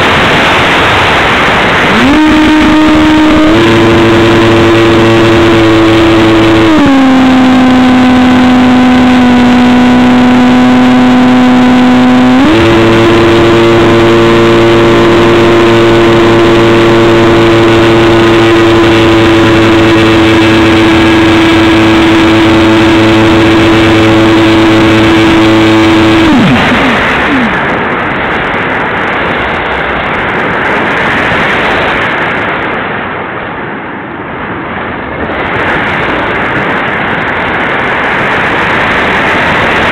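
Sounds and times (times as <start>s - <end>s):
electric motor propeller whine: 0.0s - 30.0s
rushing wind: 0.0s - 39.9s.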